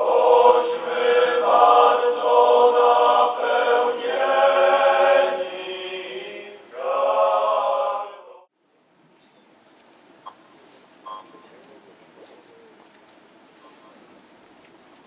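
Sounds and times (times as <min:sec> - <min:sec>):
choir singing: 0:00.0 - 0:08.5.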